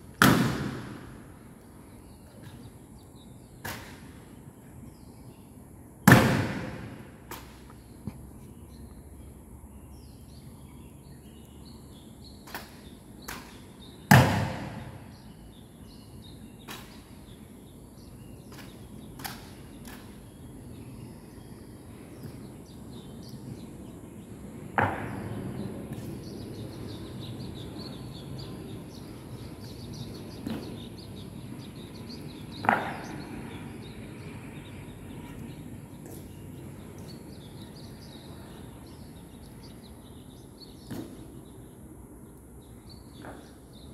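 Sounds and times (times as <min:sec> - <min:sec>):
outdoor background noise: 0:00.0 - 0:43.9.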